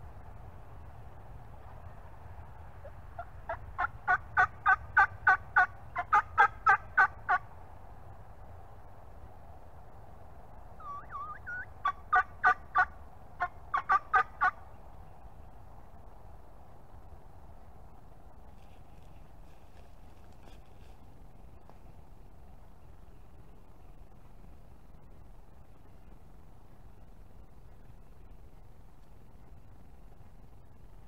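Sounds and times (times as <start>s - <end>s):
turkey yelping: 3.2s - 7.4s, 10.8s - 14.6s.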